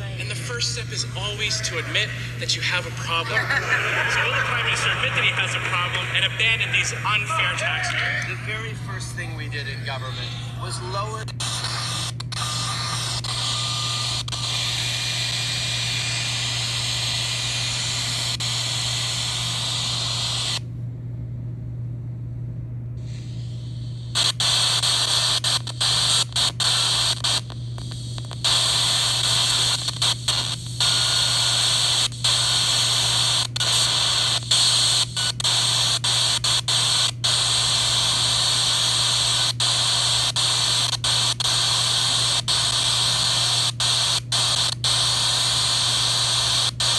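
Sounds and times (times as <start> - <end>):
radio static hiss: 0.0 - 20.6, 23.0 - 46.9
low hum: 0.0 - 25.0.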